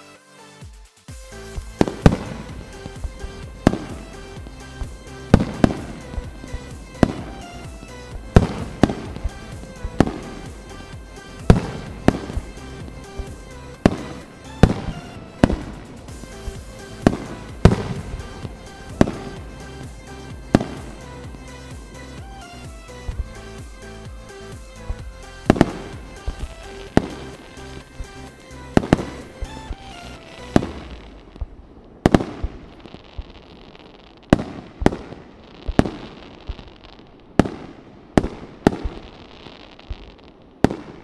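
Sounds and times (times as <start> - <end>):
background music: 0.0 - 31.4
fireworks banging: 1.1 - 41.0.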